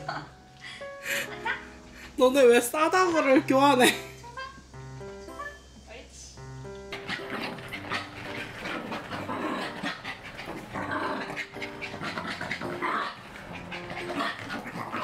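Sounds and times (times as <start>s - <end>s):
dogs panting: 6.8s - 15.0s.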